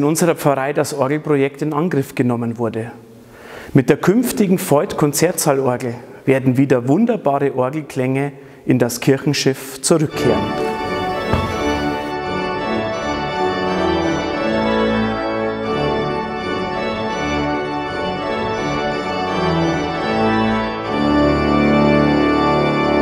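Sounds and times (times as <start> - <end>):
pipe organ chords: 10.0 - 23.0.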